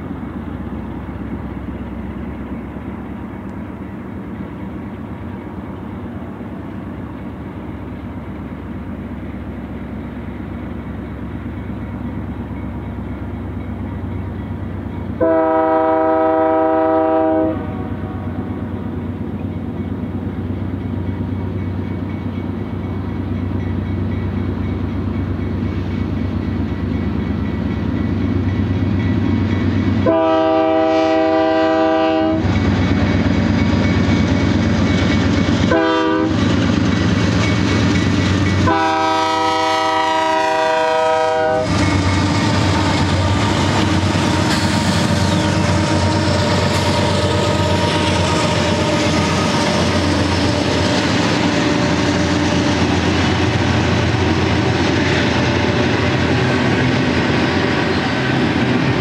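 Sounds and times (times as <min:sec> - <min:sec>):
diesel locomotive engines: 0:00.0 - 0:59.0
train wheels on rails: 0:00.0 - 0:59.0
multi-note train horn: 0:15.2 - 0:18.6, 0:30.0 - 0:32.5, 0:35.7 - 0:36.5, 0:38.6 - 0:41.8, 0:43.0 - 0:53.2.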